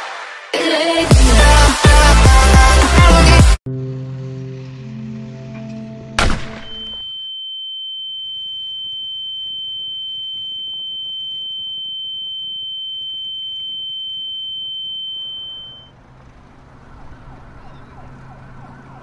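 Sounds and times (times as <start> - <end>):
high-pitched electronic beep tone: 6.7 - 15.9.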